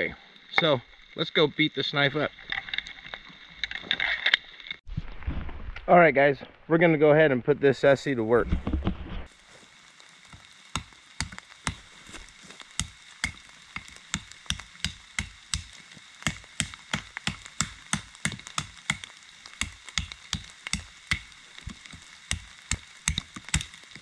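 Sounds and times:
knife chopping wood: 0:10.3 - 0:11.9, 0:12.8 - 0:24.0.

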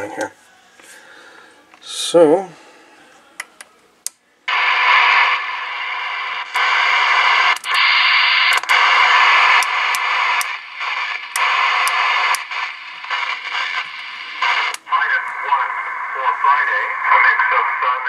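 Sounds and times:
radio static hiss: 0:04.5 - 0:18.0
sharp clicks: 0:07.5 - 0:07.8, 0:08.5 - 0:08.8, 0:09.5 - 0:12.6.

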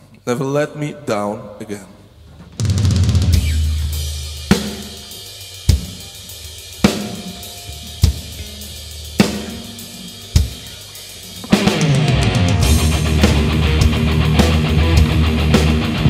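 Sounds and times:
drum and cymbal hits: 0:02.5 - 0:16.0
loud low held note: 0:03.3 - 0:05.1, 0:11.8 - 0:14.4.

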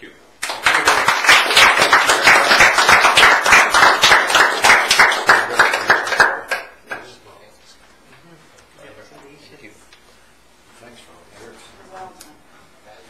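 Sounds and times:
people applauding: 0:00.4 - 0:07.1.

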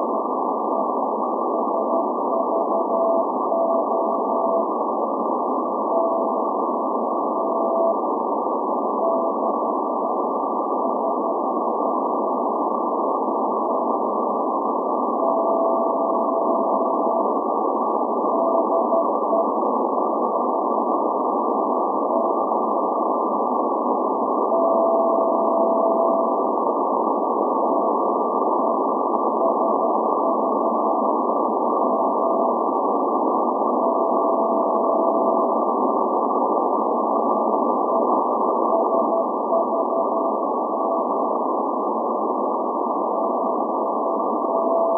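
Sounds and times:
radio static hiss: 0:00.0 - 0:44.9
morse code tone: 0:01.6 - 0:04.7, 0:15.2 - 0:17.3, 0:18.3 - 0:19.5, 0:24.5 - 0:26.3, 0:33.8 - 0:35.6, 0:38.7 - 0:41.2, 0:43.1 - 0:44.9.

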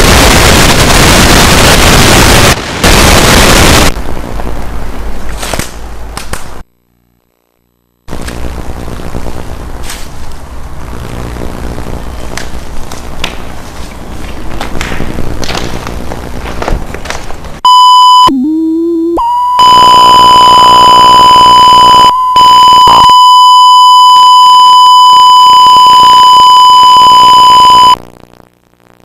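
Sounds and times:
crackling rumble: 0:00.0 - 0:18.3
high-pitched test tone: 0:17.6 - 0:28.0.

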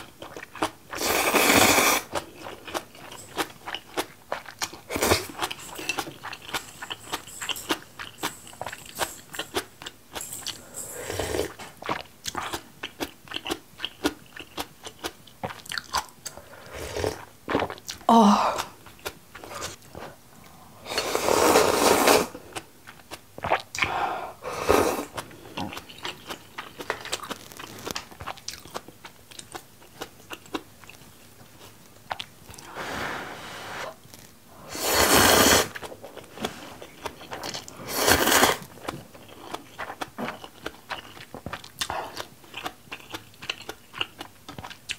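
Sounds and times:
person chewing and crunching food: 0:00.0 - 0:32.8, 0:33.9 - 0:44.9.

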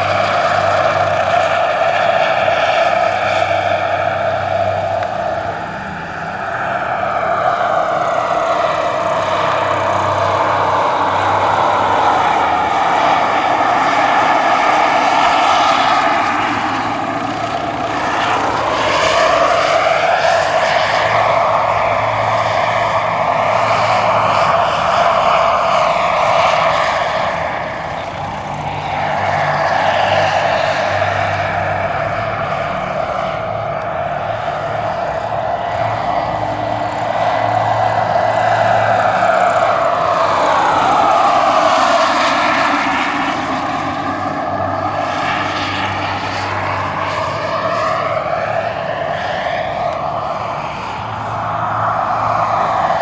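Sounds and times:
helicopter main rotor beat: 0:00.0 - 0:53.0
model gas turbine whining: 0:00.0 - 0:53.0.

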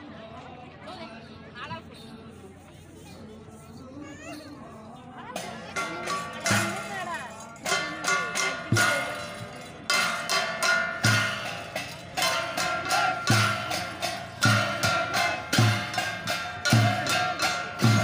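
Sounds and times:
metallic ringing percussion: 0:04.1 - 0:18.0.

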